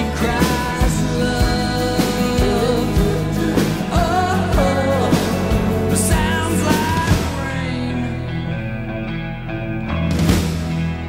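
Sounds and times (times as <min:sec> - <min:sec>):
instrumental rock song: 0:00.0 - 0:11.0.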